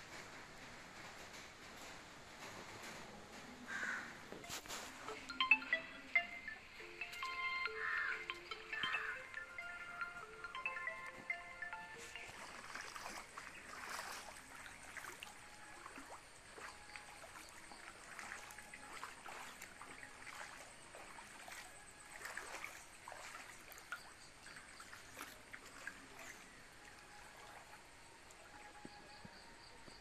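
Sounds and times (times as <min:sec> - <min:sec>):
faint trickling water: 0:00.2 - 0:29.9
small splashes and crackles: 0:12.1 - 0:29.0.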